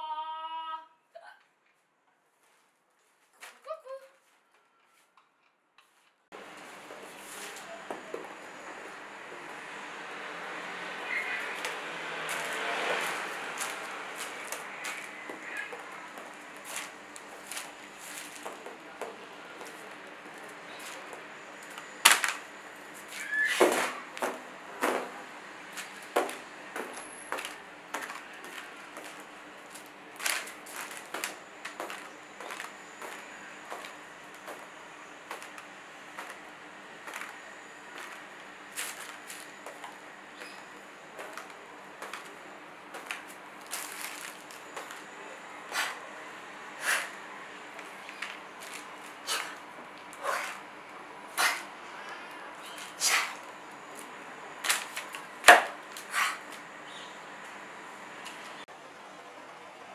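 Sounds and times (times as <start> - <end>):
brief high squeak: 23.1 - 24.0.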